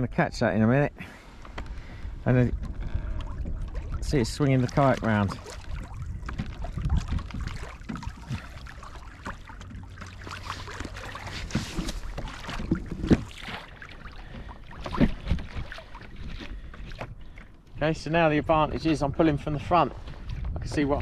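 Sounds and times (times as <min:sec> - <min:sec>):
water lapping against kayak hull: 0:00.8 - 0:21.0
wind rumbling on microphone: 0:01.5 - 0:09.8, 0:14.2 - 0:21.0.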